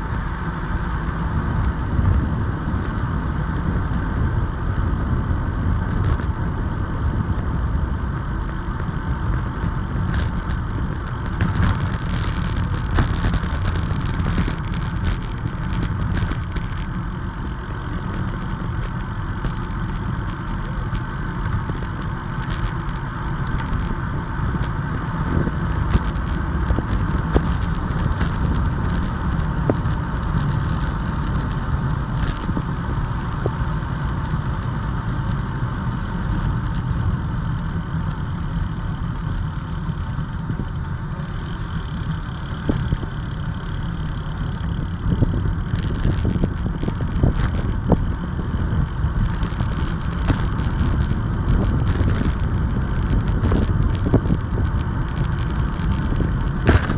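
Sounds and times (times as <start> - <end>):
wind rushing over microphone: 0.0 - 19.1, 44.4 - 56.9
camera mount rattling: 56.5 - 56.9.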